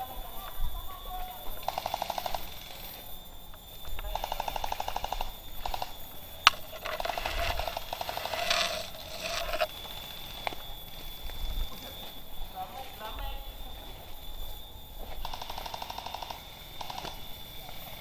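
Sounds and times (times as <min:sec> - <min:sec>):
gel blaster full-auto bursts: 0:15.2 - 0:17.2.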